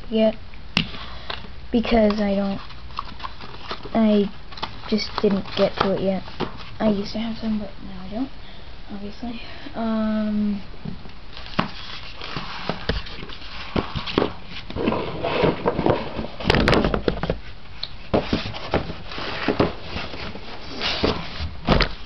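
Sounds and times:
cardboard box knocking and rustling: 0:13.7 - 0:17.4, 0:18.1 - 0:22.0.

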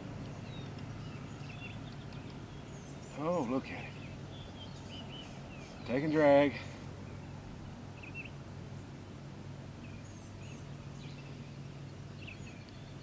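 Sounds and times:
low steady hum: 0:00.0 - 0:13.0
faint bird chirps: 0:00.3 - 0:08.9.

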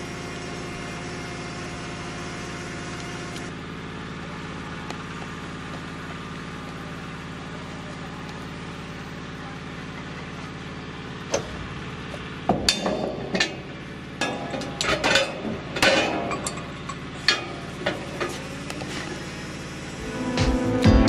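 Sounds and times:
metal hook clanking: 0:14.2 - 0:17.5.

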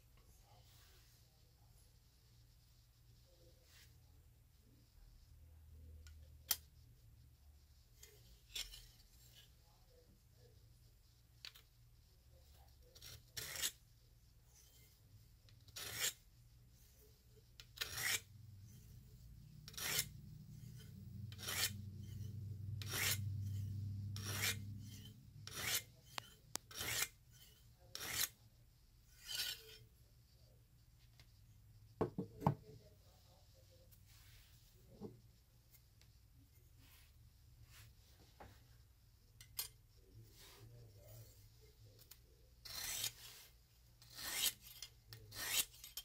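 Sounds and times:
hone scraping knife blade: 0:08.0 - 0:09.5, 0:13.0 - 0:13.8, 0:15.7 - 0:16.2, 0:17.6 - 0:19.0, 0:19.6 - 0:28.4, 0:29.1 - 0:29.9, 0:42.0 - 0:46.0.

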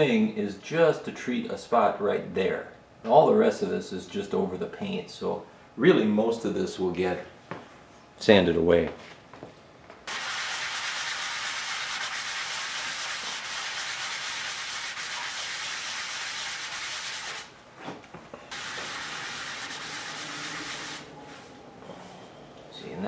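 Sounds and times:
sanding block scratching: 0:10.1 - 0:17.5, 0:18.5 - 0:21.1.

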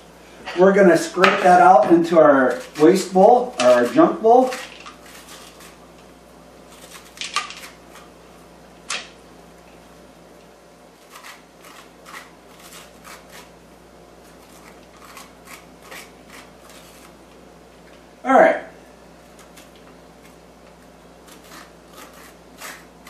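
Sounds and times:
scraping squash pulp: 0:00.5 - 0:06.0, 0:06.6 - 0:08.2, 0:11.0 - 0:17.4, 0:19.2 - 0:23.0.

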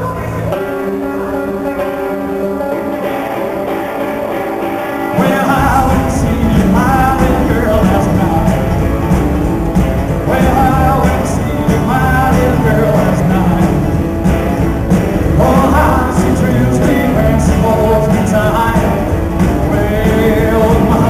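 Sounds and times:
live rockabilly band: 0:00.0 - 0:21.0
man singing: 0:05.0 - 0:09.1, 0:10.2 - 0:14.1, 0:15.2 - 0:21.0.

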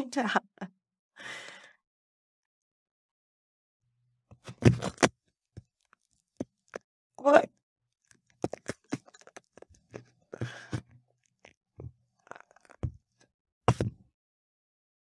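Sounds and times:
knife crunching through bread crust: 0:04.4 - 0:06.8, 0:08.0 - 0:11.6, 0:12.2 - 0:13.8.

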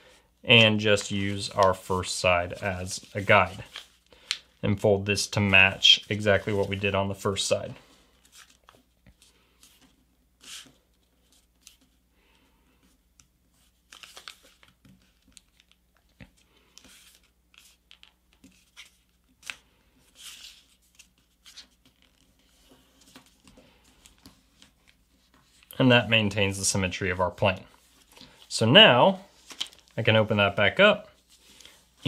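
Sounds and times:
paper being folded and creased: 0:00.6 - 0:07.4, 0:08.2 - 0:12.0, 0:13.6 - 0:25.8, 0:29.3 - 0:30.0.

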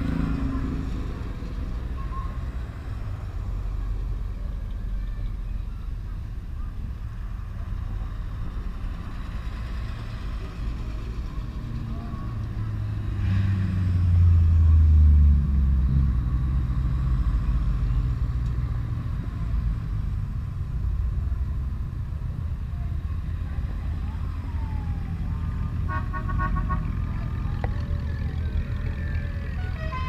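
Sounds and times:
cars driving past: 0:00.0 - 0:05.0, 0:07.7 - 0:22.5
car horn tooting: 0:25.9 - 0:27.0, 0:29.5 - 0:30.0.

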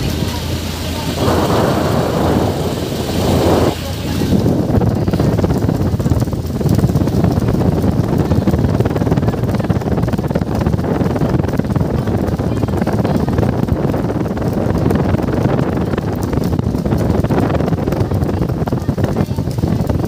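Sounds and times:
loud rushing noise: 0:00.0 - 0:05.3
motorboat running: 0:00.0 - 0:20.0
wind buffeting microphone: 0:00.0 - 0:20.0.

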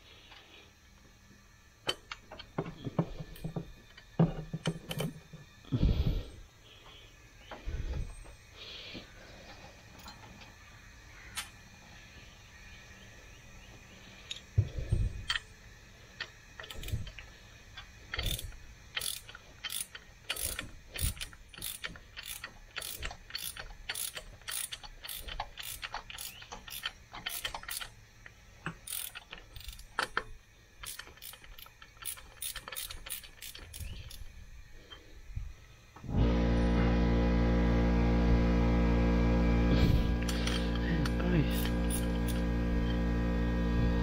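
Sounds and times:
hand ratchet clicking: 0:16.2 - 0:28.0, 0:28.6 - 0:34.4, 0:40.2 - 0:43.0.

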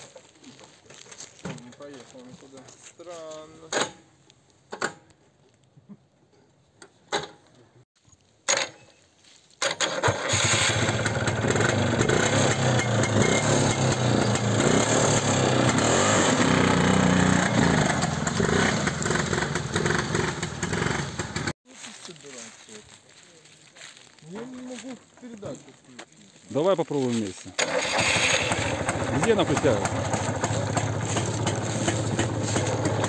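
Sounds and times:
quad engine running: 0:10.0 - 0:21.5, 0:27.6 - 0:33.0.

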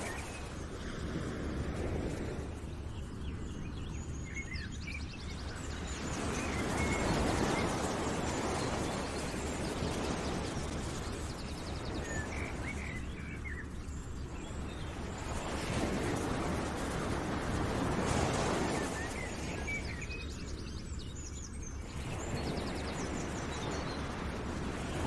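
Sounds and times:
rushing wash of surf or wind: 0:00.0 - 0:02.9, 0:05.5 - 0:13.0, 0:14.6 - 0:20.6, 0:21.9 - 0:25.0.

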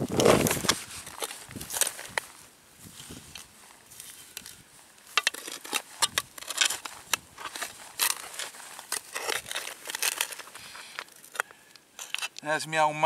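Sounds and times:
spade digging into soil: 0:04.0 - 0:12.4.

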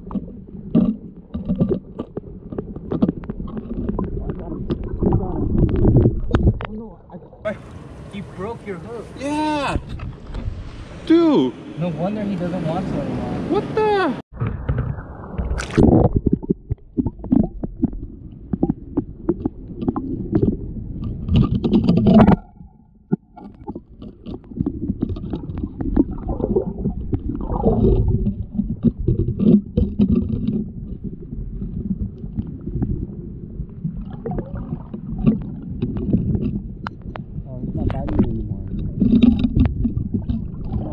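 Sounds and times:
small knocks and scrapes: 0:00.0 - 0:06.8, 0:17.2 - 0:22.4, 0:23.1 - 0:26.2, 0:26.8 - 0:33.0, 0:34.8 - 0:40.9
underwater water churning: 0:00.0 - 0:08.1, 0:14.3 - 0:40.9.

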